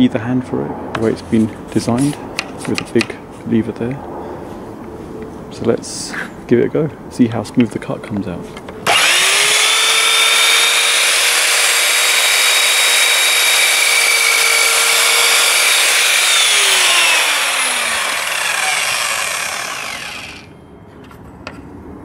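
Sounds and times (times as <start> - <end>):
mitre saw whining: 8.8 - 20.6.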